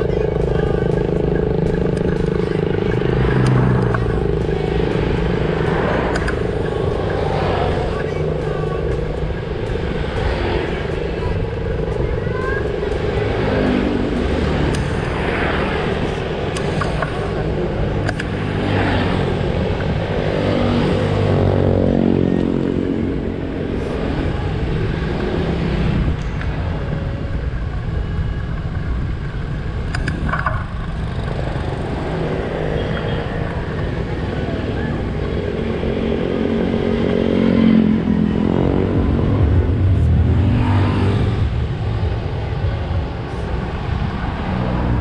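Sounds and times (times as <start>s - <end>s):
motorcycle engine running: 0.0s - 45.0s
passing traffic: 0.0s - 45.0s
wind and road noise: 0.0s - 45.0s.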